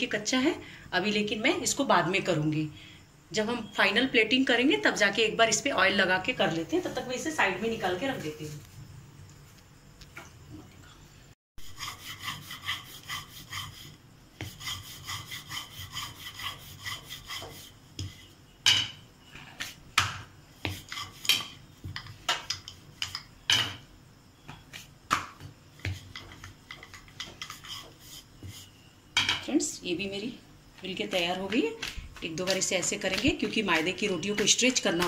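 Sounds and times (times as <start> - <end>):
rolling pin rubbing rattle: 25.8 - 28.7.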